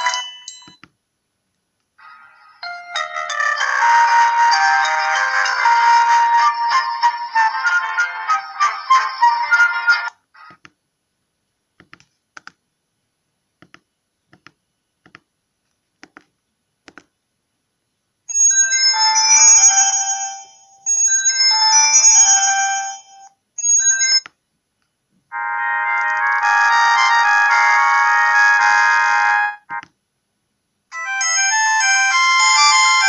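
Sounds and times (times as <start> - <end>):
phone ringtone melodies: 0.0 - 0.8, 2.2 - 10.1, 18.3 - 24.3, 25.3 - 29.8, 30.9 - 33.0.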